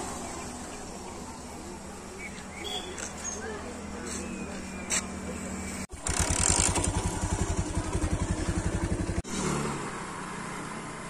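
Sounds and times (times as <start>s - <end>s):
small motorcycle engine chugging: 5.2s - 9.6s.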